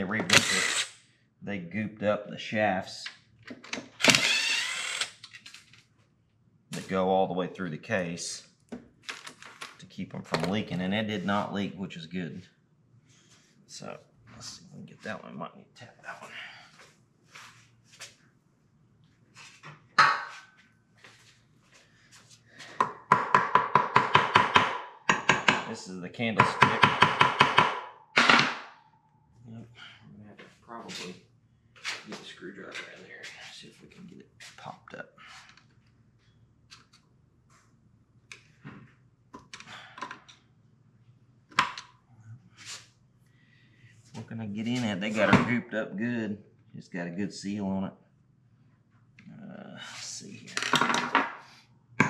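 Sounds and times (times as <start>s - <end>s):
screwdriver scraping metal: 0.2s - 0.9s
hammer tapping on metal: 22.8s - 25.7s, 26.4s - 27.9s.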